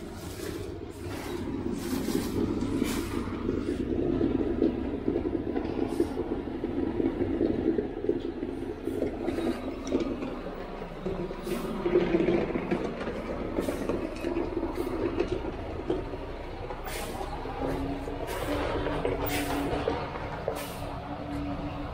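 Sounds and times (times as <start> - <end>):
truck diesel engine running: 0.0 - 21.9.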